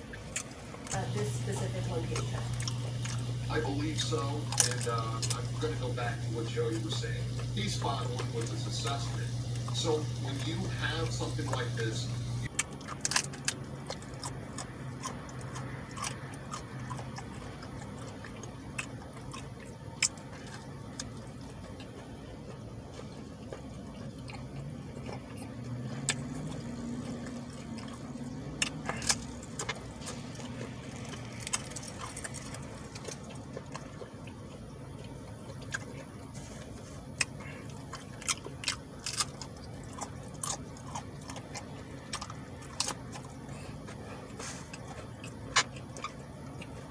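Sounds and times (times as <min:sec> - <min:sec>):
faint low hum: 0:00.0 - 0:46.9
man chewing tacos: 0:00.0 - 0:46.9
wet mouth clicks and smacks: 0:37.2 - 0:46.8.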